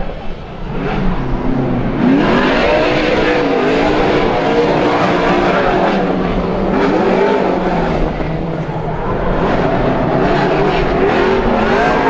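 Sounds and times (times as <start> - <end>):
car engine revving hard: 0.4 - 12.0.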